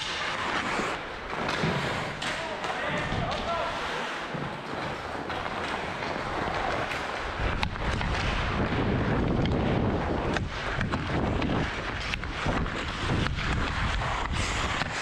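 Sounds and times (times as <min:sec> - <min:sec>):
skate blades scraping ice: 0:00.0 - 0:15.0
wind rushing over microphone: 0:06.2 - 0:15.0.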